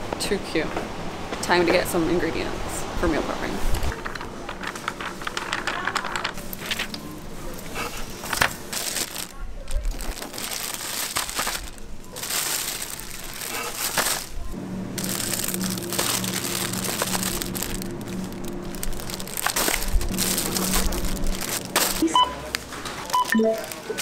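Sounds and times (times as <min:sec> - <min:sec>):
plastic packaging crinkling: 0:03.9 - 0:24.0
short electronic scanner beeps: 0:22.0 - 0:22.4, 0:23.1 - 0:24.0.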